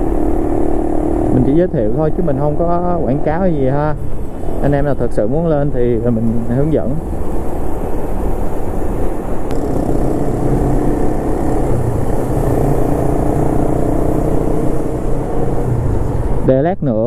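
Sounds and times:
motorcycle engine running: 0.0s - 3.5s, 9.5s - 16.5s
road and wind rumble: 0.0s - 17.0s.

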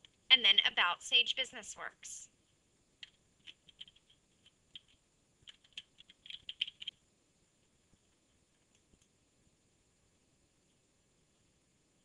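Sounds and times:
faint computer keyboard typing: 3.0s - 7.0s, 7.6s - 9.2s.

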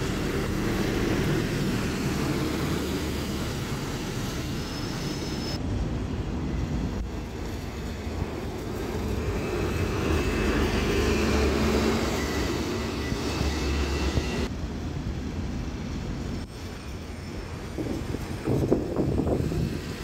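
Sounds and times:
faint high whine: 0.0s - 14.5s
bus engine driving past: 8.2s - 14.5s.

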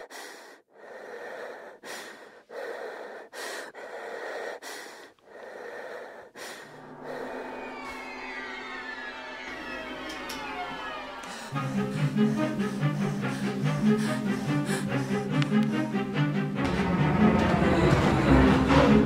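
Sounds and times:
person breathing heavily: 0.0s - 7.5s, 11.2s - 17.2s
orchestral strings: 6.7s - 19.0s.

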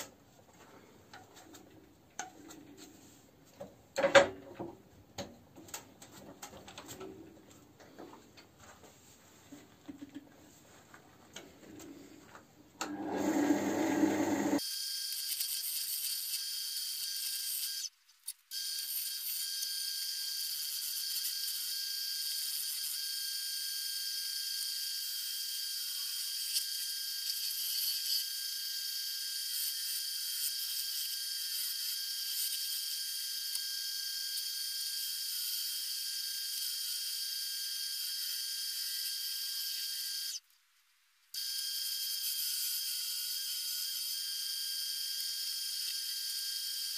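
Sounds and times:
wood lathe turning tool cutting: 12.8s - 14.6s.

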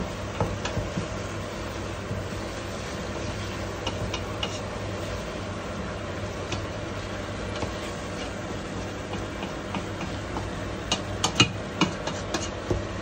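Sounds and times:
spatula stirring thick curry: 2.4s - 5.3s
spatula knocking against pot: 9.1s - 12.8s.

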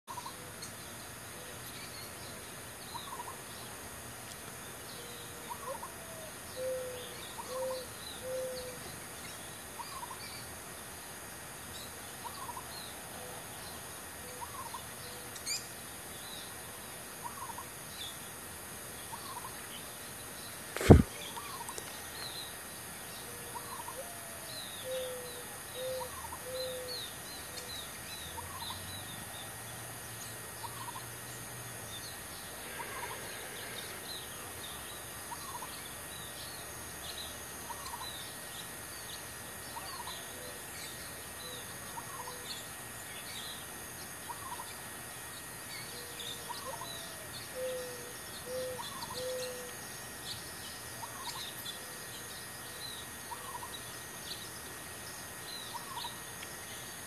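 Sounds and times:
faint steady hiss: 0.1s - 57.0s
birds calling: 19.0s - 29.2s, 30.4s - 36.4s, 45.9s - 49.8s
high chirps: 20.8s - 21.2s.

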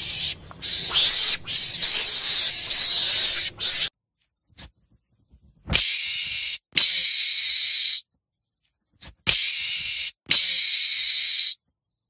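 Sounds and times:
meerkat hissing: 0.0s - 3.9s.

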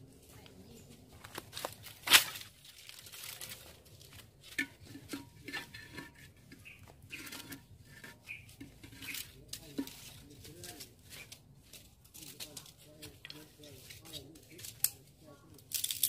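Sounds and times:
dry sticks and leaves breaking: 1.3s - 4.7s, 9.1s - 16.0s.

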